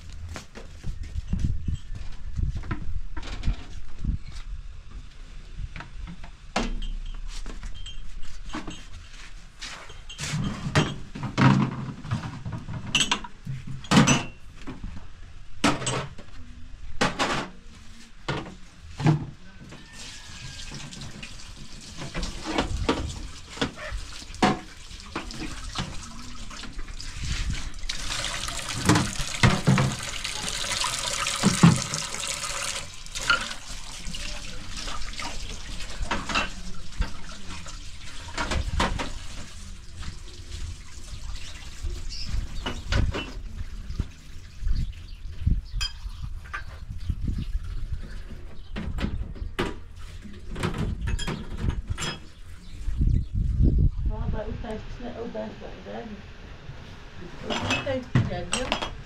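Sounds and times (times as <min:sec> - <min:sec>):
water running from a tap: 0:20.2 - 0:42.2.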